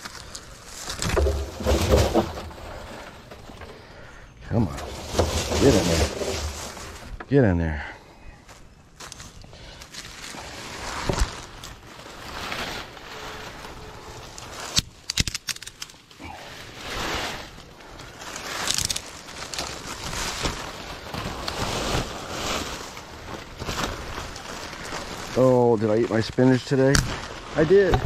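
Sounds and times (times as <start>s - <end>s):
leaves rustling: 0.0s - 7.5s, 8.5s - 28.0s
stems snapping: 14.4s - 16.2s, 18.5s - 19.8s.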